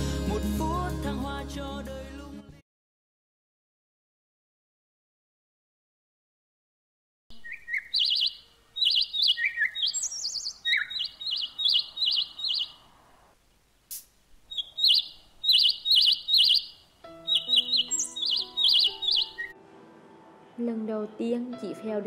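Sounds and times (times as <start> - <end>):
songbirds chirping: 7.3 - 13.4, 14.3 - 19.6
soft background music: 17.0 - 22.0.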